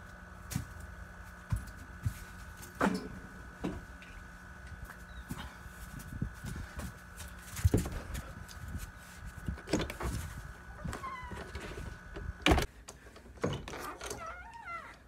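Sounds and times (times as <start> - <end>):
footsteps on a porch: 0.4 - 13.9
door squeaks: 10.7 - 11.8, 13.7 - 15.0.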